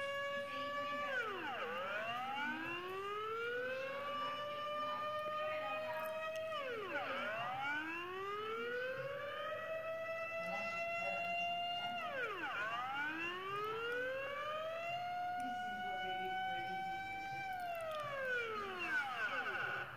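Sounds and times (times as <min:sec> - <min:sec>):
air raid siren wailing: 0:00.0 - 0:19.9.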